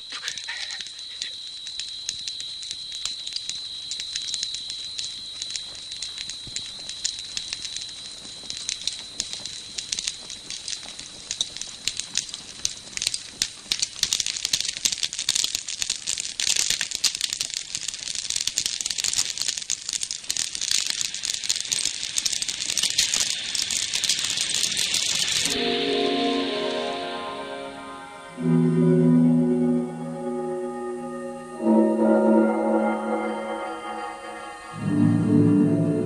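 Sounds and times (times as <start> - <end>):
brush fire crackling and popping: 0.0 - 28.5.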